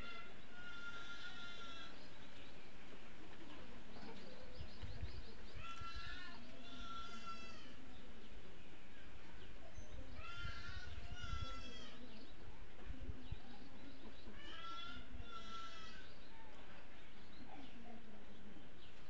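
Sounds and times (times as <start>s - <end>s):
microphone wind rumble and thumps: 4.5s - 6.2s, 10.1s - 14.3s.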